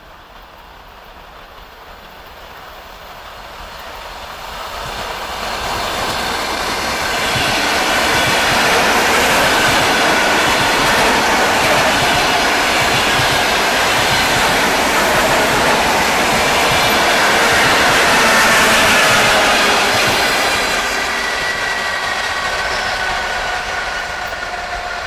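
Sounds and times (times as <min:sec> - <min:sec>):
train wheels rolling on rails: 0:00.0 - 0:25.0.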